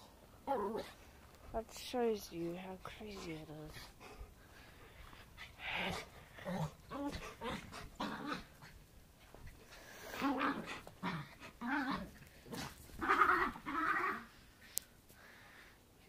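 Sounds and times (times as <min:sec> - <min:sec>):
dogs barking and yelping: 0:10.1 - 0:14.3.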